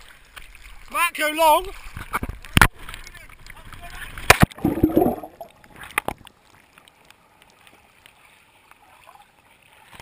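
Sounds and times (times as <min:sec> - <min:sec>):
muffled water: 0:01.5 - 0:10.0
rush of bubbles underwater: 0:04.3 - 0:05.8.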